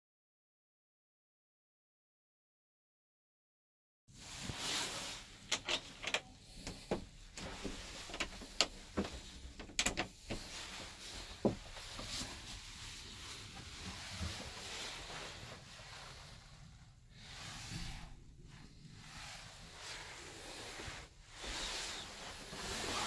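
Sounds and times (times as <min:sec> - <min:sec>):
sharp clicks and knocks: 0:05.5 - 0:10.4.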